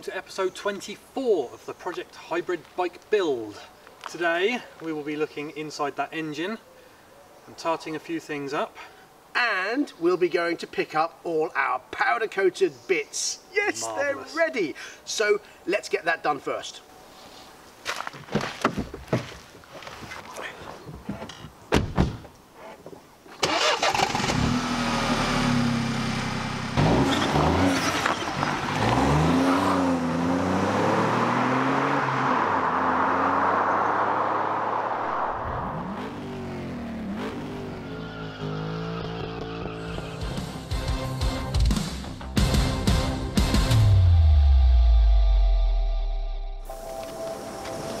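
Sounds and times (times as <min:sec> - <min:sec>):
car doors opening and shutting: 0:21.0 - 0:23.4
car engine starting and accelerating: 0:23.4 - 0:40.7.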